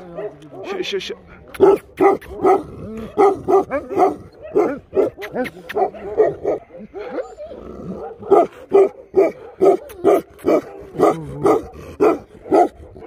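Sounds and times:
dog barking: 0:00.1 - 0:07.2, 0:07.9 - 0:13.0.

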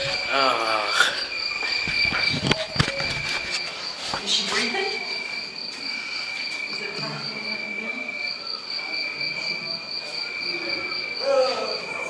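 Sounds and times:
faint voices: 0:00.0 - 0:12.0
high-pitched insect trill: 0:00.0 - 0:12.0.

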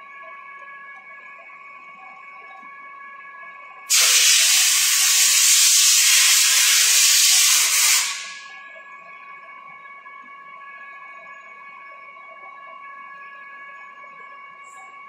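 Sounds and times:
pressurised gas hissing: 0:03.9 - 0:08.4.

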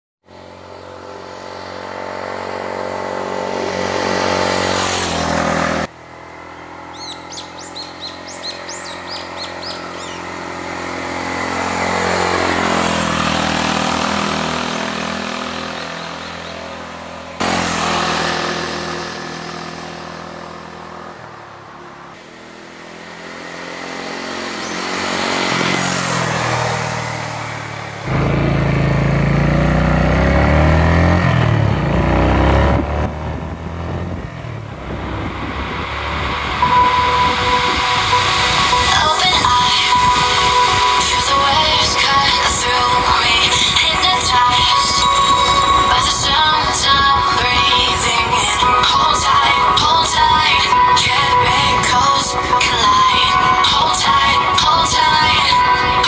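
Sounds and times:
motorcycle engine running steadily: 0:00.2 - 0:04.7, 0:05.3 - 0:55.9
motorcycle passing by: 0:00.3 - 0:56.0
birds chirping: 0:06.6 - 0:10.4, 0:15.5 - 0:16.9, 0:24.5 - 0:25.1.

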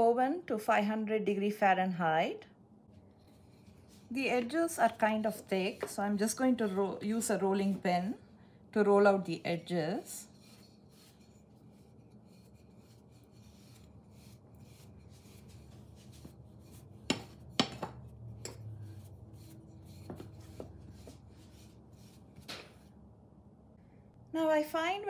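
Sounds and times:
rolling pin rubbing on dough: 0:03.2 - 0:08.1, 0:09.2 - 0:22.9.

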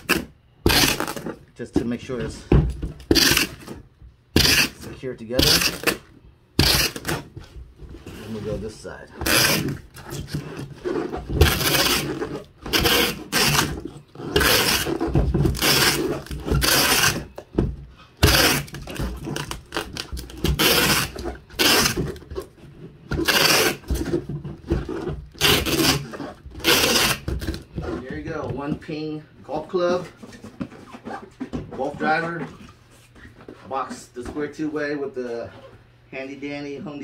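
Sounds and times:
packing tape pulled off roll: 0:00.0 - 0:01.2, 0:03.1 - 0:03.7, 0:06.6 - 0:07.3, 0:09.2 - 0:17.2, 0:18.2 - 0:22.2, 0:23.2 - 0:23.9, 0:25.3 - 0:27.6.

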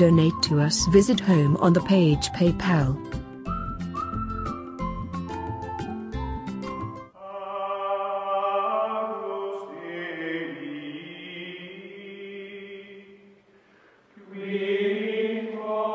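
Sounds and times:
chant-like held voices: 0:07.2 - 0:13.3, 0:14.2 - 0:15.9.

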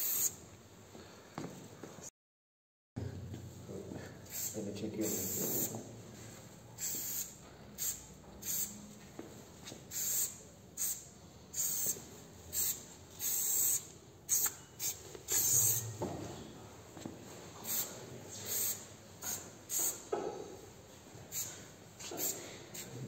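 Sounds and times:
spray paint hissing strokes: 0:00.0 - 0:00.4, 0:04.2 - 0:05.8, 0:06.8 - 0:08.8, 0:09.6 - 0:15.9, 0:17.6 - 0:20.1, 0:21.3 - 0:23.0.

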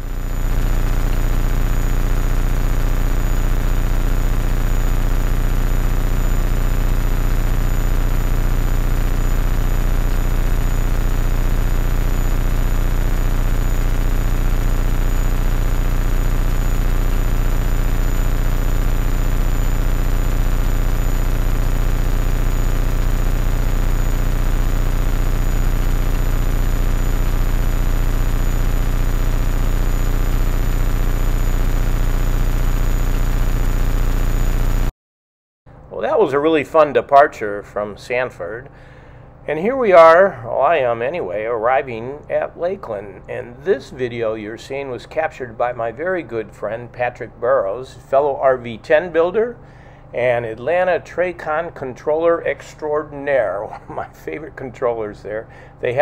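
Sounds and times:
thin high whine: 0:00.0 - 0:34.9.

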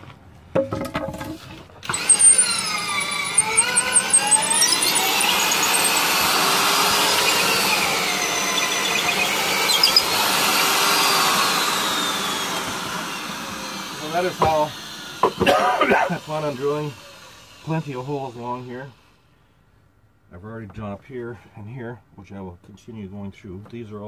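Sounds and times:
electric drill boring into concrete: 0:01.8 - 0:19.2.

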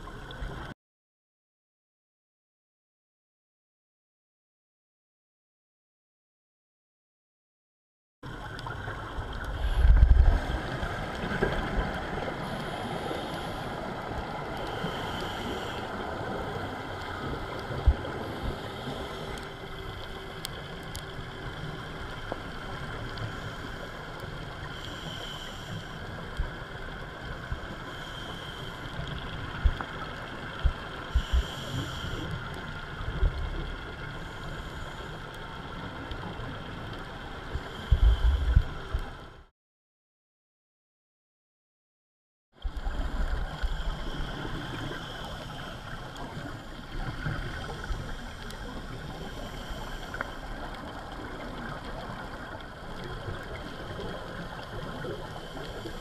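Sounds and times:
scuba regulator breathing and bubbles: 0:08.2 - 0:39.5, 0:42.6 - 0:56.0
muffled underwater hiss: 0:08.3 - 0:39.5, 0:42.6 - 0:56.0.

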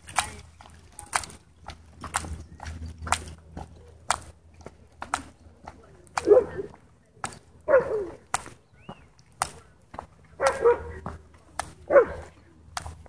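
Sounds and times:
dog barking: 0:06.2 - 0:06.7, 0:07.7 - 0:08.2, 0:10.4 - 0:11.0, 0:11.9 - 0:12.3.

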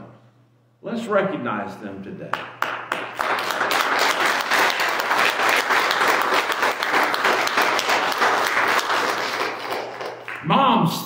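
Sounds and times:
congregation applauding: 0:02.3 - 0:10.6.

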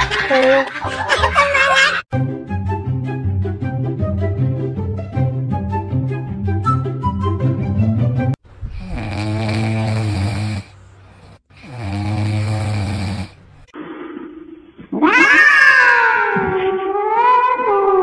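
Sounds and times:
puppy snoring: 0:08.7 - 0:13.4
cat yowling: 0:15.0 - 0:18.0.

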